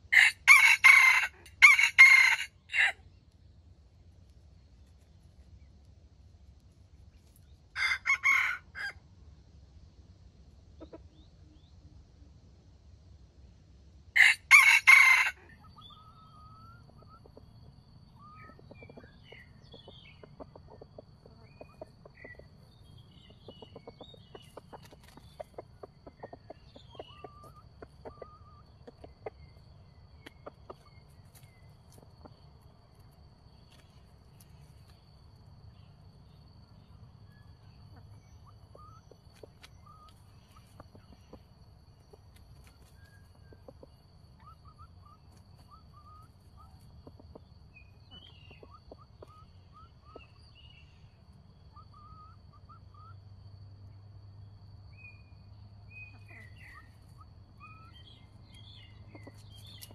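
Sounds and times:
rooster crowing: 0.1s - 3.0s, 7.8s - 9.0s, 14.2s - 16.6s
faint ticks and chirps: 15.5s - 59.9s.

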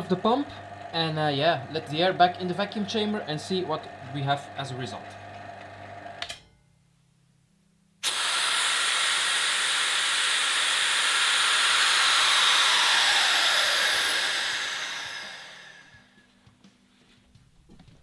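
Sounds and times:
air hissing into vacuum chamber: 8.0s - 16.0s.

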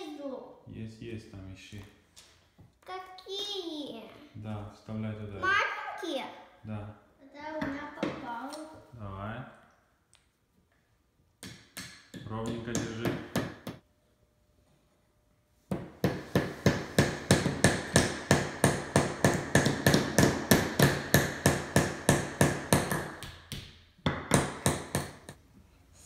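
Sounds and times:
hammer tapping a nail into wood: 11.4s - 13.8s, 15.7s - 25.4s.

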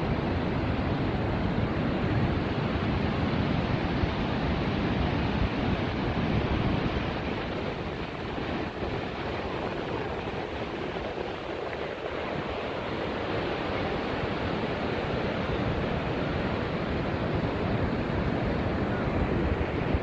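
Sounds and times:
surf breaking on beach: 0.0s - 20.0s
wind buffeting microphone: 0.0s - 20.0s.

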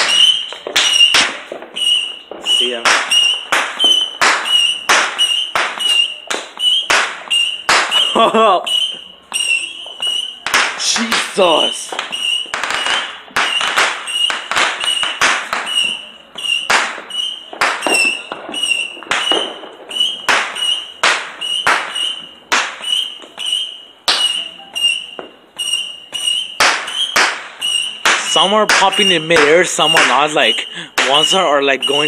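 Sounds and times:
fireworks cracks and bangs: 0.0s - 32.0s.

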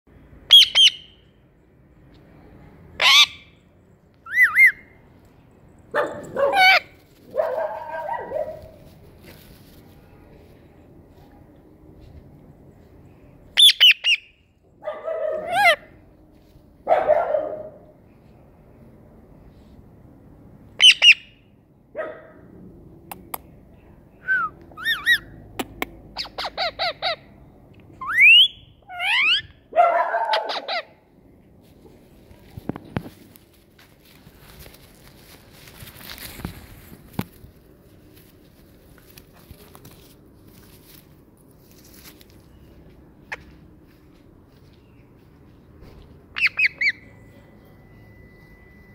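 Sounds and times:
parakeet chirping and calling: 0.5s - 1.2s, 3.0s - 3.5s, 4.2s - 4.8s, 6.5s - 6.8s, 13.6s - 14.4s, 15.4s - 15.9s, 20.8s - 21.3s, 24.8s - 25.3s, 26.2s - 27.3s, 28.0s - 29.5s, 30.3s - 31.0s, 46.3s - 47.1s.

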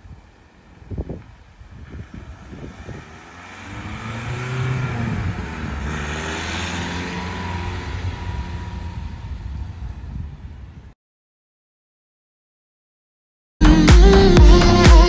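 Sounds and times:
van driving past: 0.2s - 10.6s.

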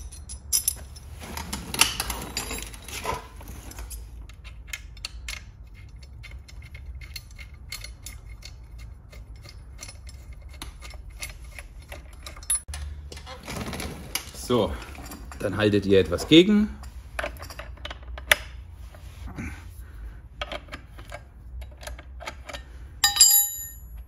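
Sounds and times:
metal tool clinking: 0.0s - 12.9s, 21.6s - 24.0s.

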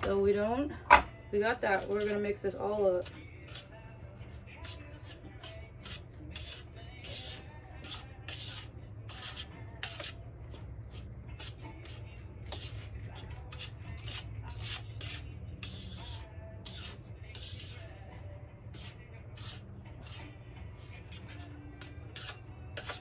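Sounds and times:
utensil scraping breading on plate: 4.5s - 18.1s, 18.7s - 23.0s.

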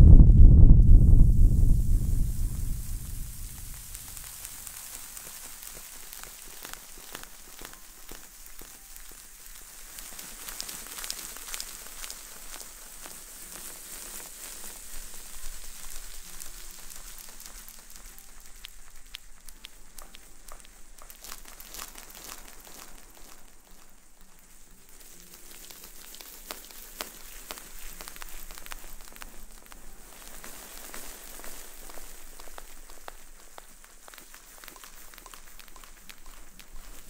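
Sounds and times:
fuzzy object scratched on microphone: 0.0s - 5.2s.

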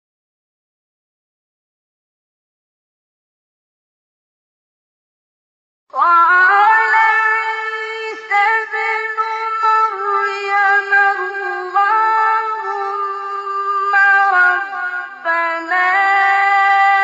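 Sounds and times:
man chanting recitation: 6.4s - 17.0s.

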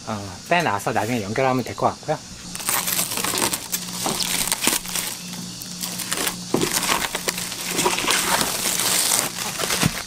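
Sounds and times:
plastic film crinkling as peeled: 2.5s - 10.0s.

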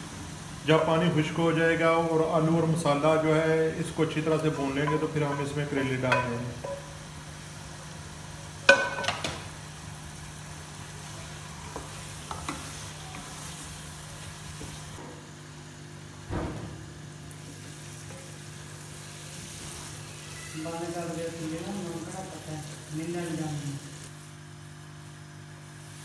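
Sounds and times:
curry sizzling in a pot: 0.0s - 16.2s, 16.8s - 26.0s
spatula knocking against pot: 4.8s - 6.9s.

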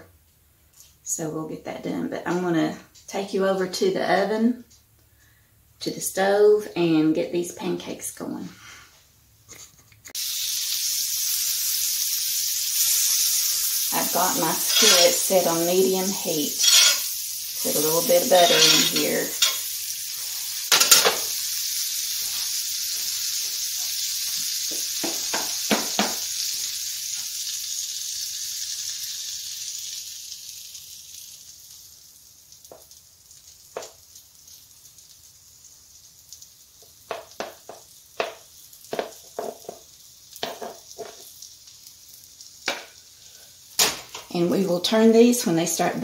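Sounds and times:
butter sizzling in a skillet: 9.5s - 46.0s
spoon tapping bowl and pan: 14.6s - 15.3s, 16.5s - 17.1s, 18.3s - 19.6s, 20.7s - 21.3s, 25.0s - 26.3s, 37.1s - 39.8s, 40.4s - 41.2s.

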